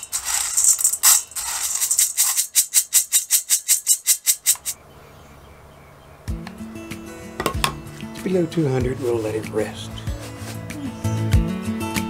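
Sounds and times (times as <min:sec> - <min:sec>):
coffee beans rattling in metal colander: 0:00.0 - 0:04.8.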